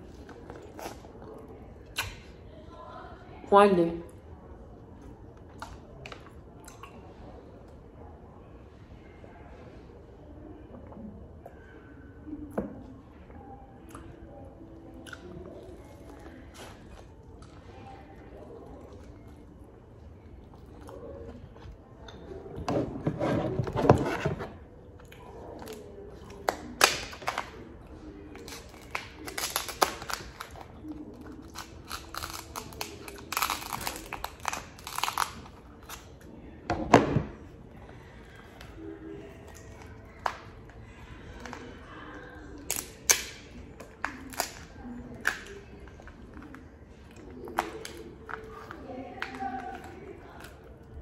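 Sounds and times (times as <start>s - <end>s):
crab shells cracking: 28.4s - 30.6s, 31.3s - 36.0s, 44.0s - 45.6s.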